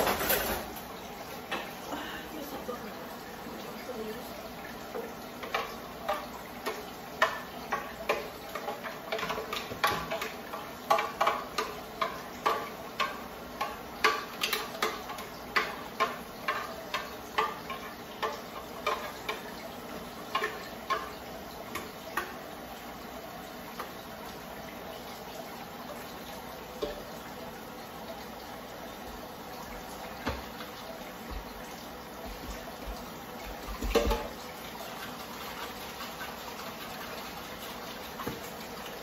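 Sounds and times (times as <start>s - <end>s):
spoon knocking and scraping pan: 32.2s - 34.4s.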